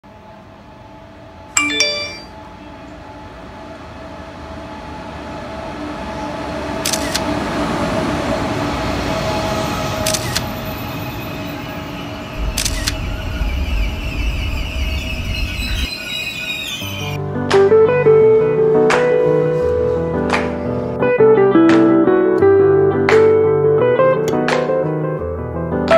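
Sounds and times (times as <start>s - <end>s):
train rumble and whine: 0.1s - 1.6s, 2.3s - 17.2s
short chime: 1.6s - 2.4s
sharp clicks: 10.1s - 10.4s, 12.4s - 13.0s.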